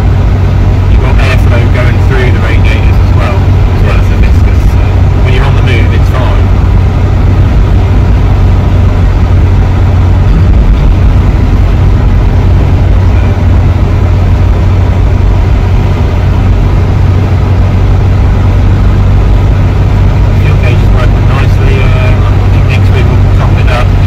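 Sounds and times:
car engine and tyre drone: 0:00.0 - 0:24.0.

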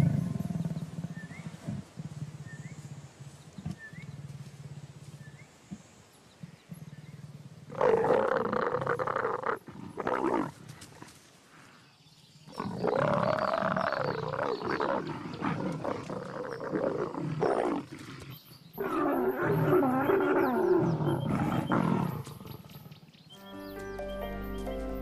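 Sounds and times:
leopards snarling and growling: 0:00.0 - 0:03.3, 0:06.7 - 0:11.7, 0:12.5 - 0:23.1.

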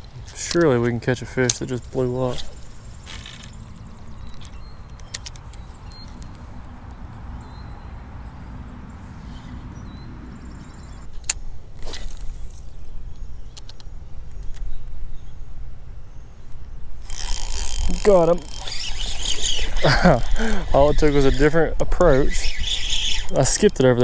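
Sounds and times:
fishing reel clicks: 0:17.0 - 0:24.0.

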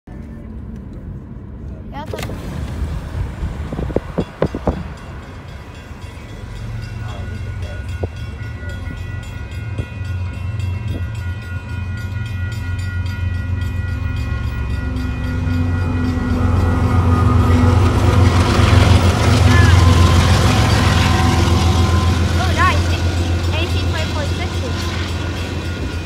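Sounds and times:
train low rumble: 0:00.1 - 0:26.0
train horn held chord: 0:14.7 - 0:25.1.

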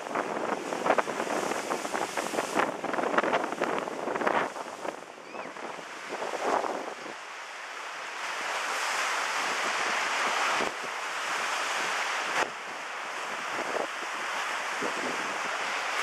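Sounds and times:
wind buffeting microphone: 0:00.0 - 0:07.2, 0:08.4 - 0:16.0
waves splashing against a wall: 0:00.0 - 0:16.0.

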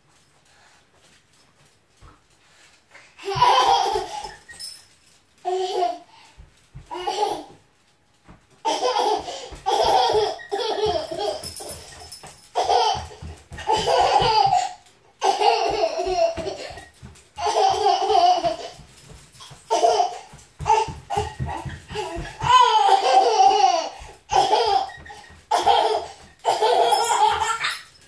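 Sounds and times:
toddler laughing: 0:03.2 - 0:04.6, 0:08.6 - 0:18.9, 0:19.5 - 0:28.0.

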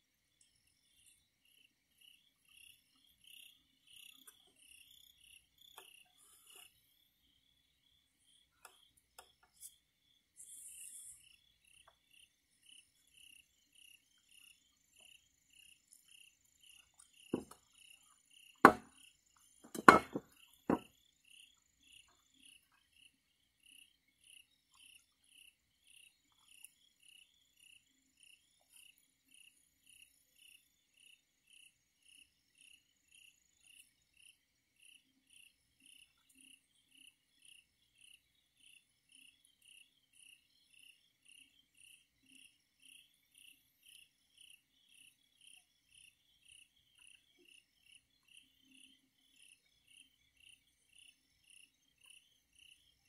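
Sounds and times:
crickets chirping: 0:00.0 - 0:53.0
sharp knocks: 0:18.7 - 0:18.9, 0:19.7 - 0:20.8.

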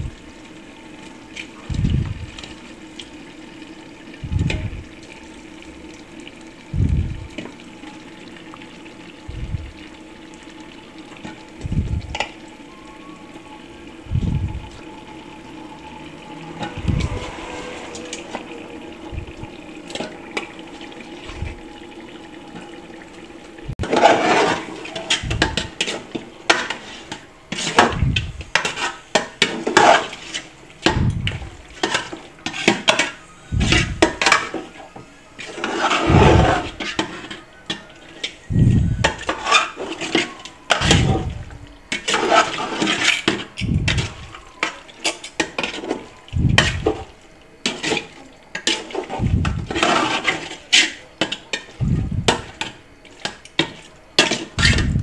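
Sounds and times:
wet squelching stirring: 0:01.0 - 0:55.0
utensil scraping a pot: 0:15.6 - 0:22.8, 0:23.8 - 0:55.0.

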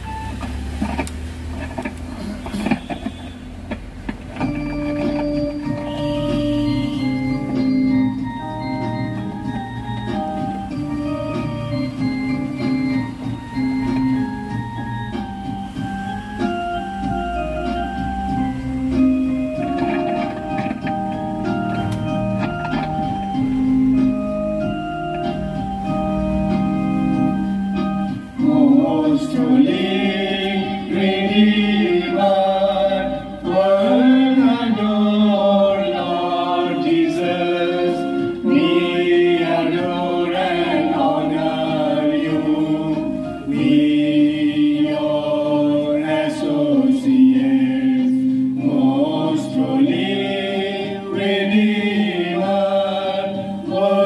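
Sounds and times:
keyboard organ chords: 0:00.0 - 0:54.0
group singing a hymn: 0:27.8 - 0:54.0.

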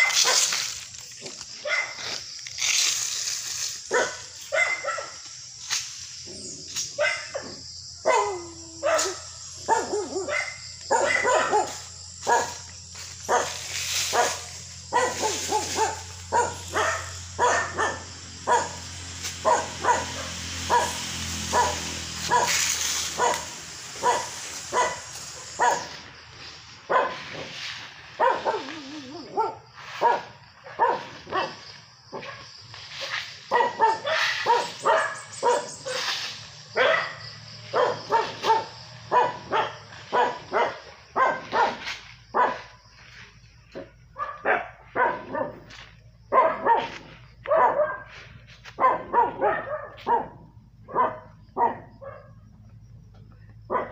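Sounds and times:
dog barking: 0:00.0 - 0:00.5, 0:01.6 - 0:02.0, 0:03.9 - 0:05.2, 0:07.0 - 0:12.7, 0:13.3 - 0:22.6, 0:23.2 - 0:26.0, 0:26.9 - 0:27.6, 0:28.2 - 0:36.0, 0:36.8 - 0:42.8, 0:43.7 - 0:45.7, 0:46.3 - 0:52.5, 0:53.7 - 0:53.9
steady high hiss: 0:18.2 - 0:29.0.

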